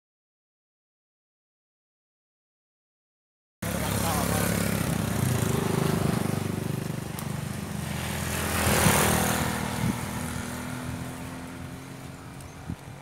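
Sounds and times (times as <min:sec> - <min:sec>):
motorcycle passing by: 0:03.6 - 0:13.0
vehicle passing in rush: 0:03.6 - 0:13.0.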